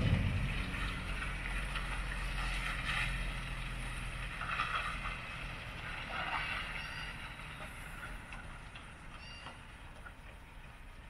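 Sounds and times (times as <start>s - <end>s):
hissing and rattling: 0.0s - 3.5s
truck diesel engine humming: 0.0s - 11.0s.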